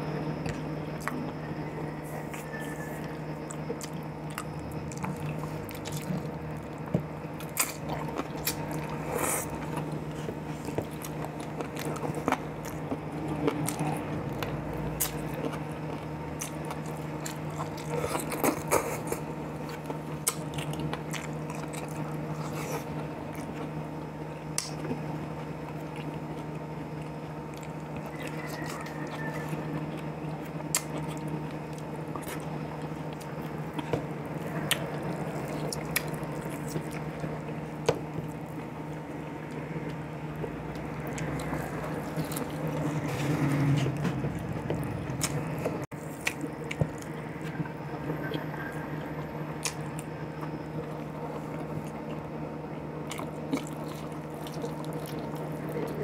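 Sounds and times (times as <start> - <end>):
man chewing and eating: 0.0 - 56.0
low hum: 25.0 - 56.0.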